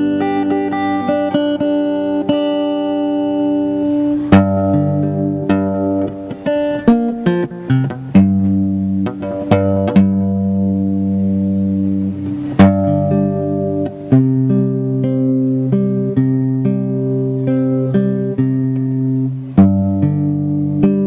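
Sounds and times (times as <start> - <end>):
acoustic guitar strumming chords: 0.0 - 21.0.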